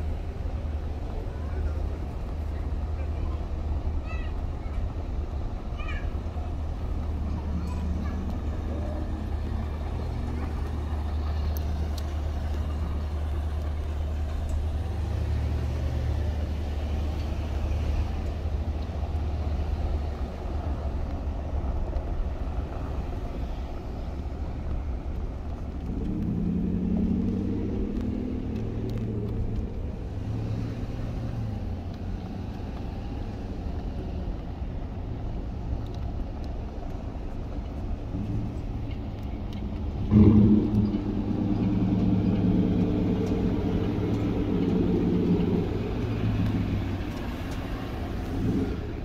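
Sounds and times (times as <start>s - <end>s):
idling engines and machinery rumble: 0.0s - 49.0s
vehicle engine passing close: 25.2s - 34.4s, 38.0s - 49.0s.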